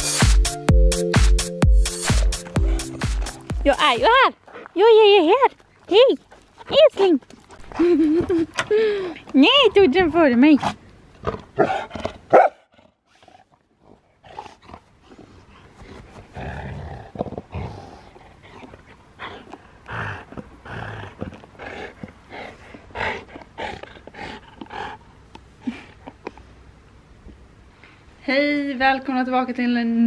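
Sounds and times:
dog growling playfully: 11.2 - 25.1.

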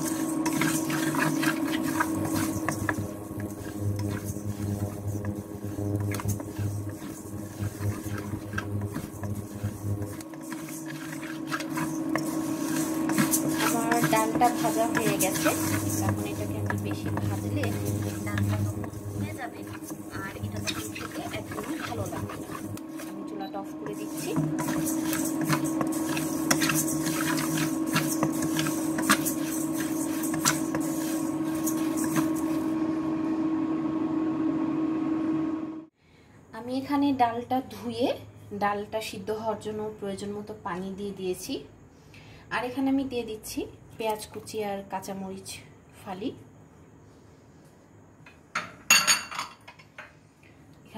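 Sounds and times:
low pulsing hum: 0.0 - 32.7
grains scraping in metal wok: 0.0 - 32.9.

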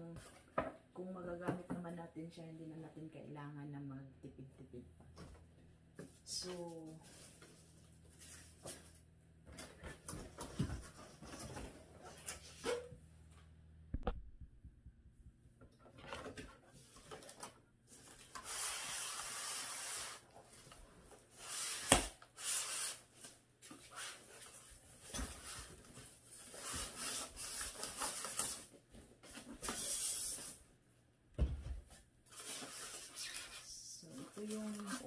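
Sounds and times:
packaging rustling and scraping: 6.0 - 12.9, 15.9 - 30.6, 32.3 - 35.0.

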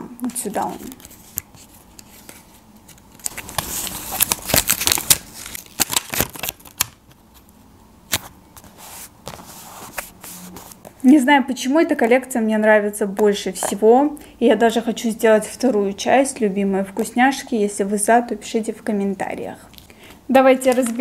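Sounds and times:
paper rustling and crinkling: 0.4 - 7.5, 8.1 - 11.0
paper rubbing: 3.3 - 5.6, 8.6 - 10.9.

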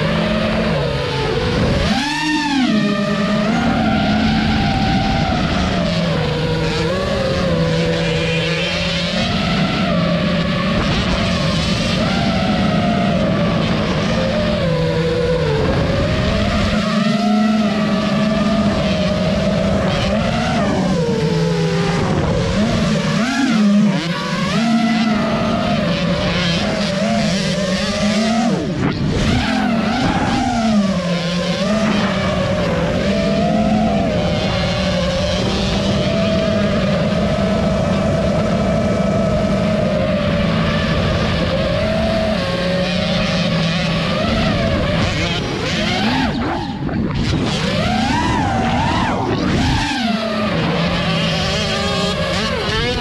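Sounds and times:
drone motors and propellers whining: 0.0 - 53.0.

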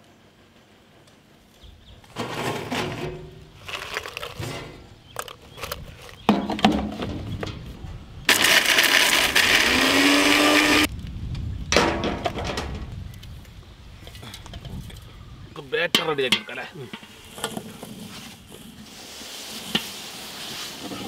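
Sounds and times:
mixer grinder motor running: 8.3 - 10.9.

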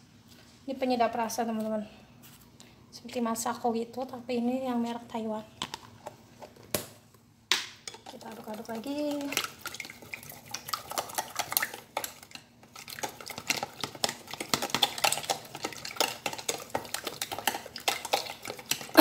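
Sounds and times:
chopsticks beating egg in container: 7.9 - 19.0.

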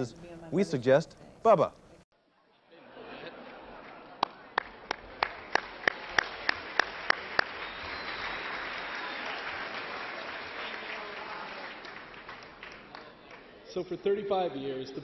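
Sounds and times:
audience applause: 3.5 - 13.6
person clapping close: 4.2 - 9.4.

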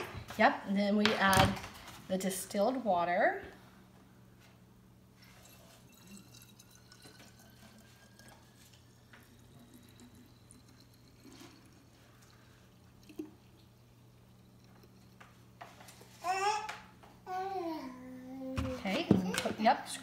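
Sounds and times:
water trickling into a glass bottle: 5.2 - 15.6.

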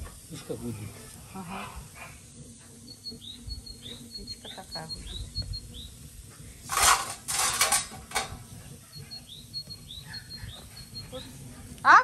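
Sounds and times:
steam spitting: 0.0 - 11.8
porridge boiling in saucepan: 0.0 - 12.0
saucepan lid rattling: 6.7 - 8.4.

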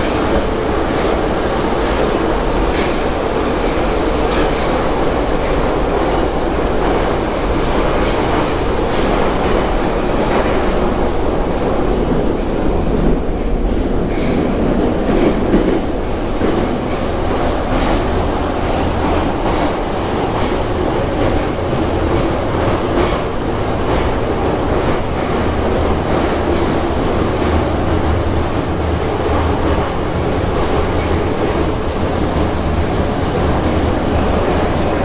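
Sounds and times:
train wheels and motors rumbling: 0.0 - 35.0.

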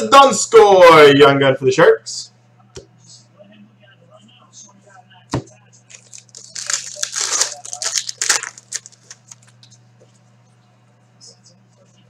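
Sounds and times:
foil wrapper crinkling and tearing: 5.9 - 9.6.

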